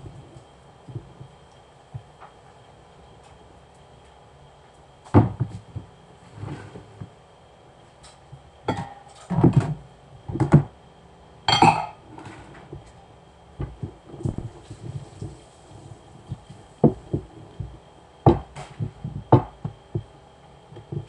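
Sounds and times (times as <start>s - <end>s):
pots and pans clattering: 8.7s - 9.7s, 11.5s - 12.6s.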